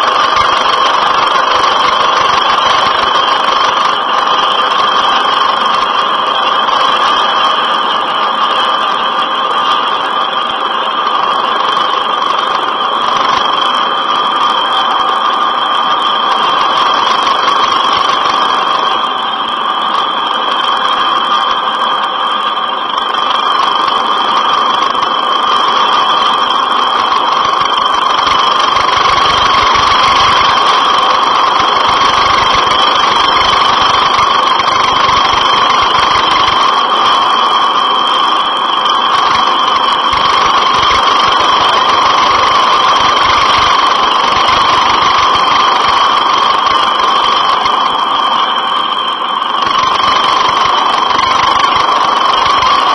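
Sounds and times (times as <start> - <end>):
helicopter engine whine: 0.0 - 52.9.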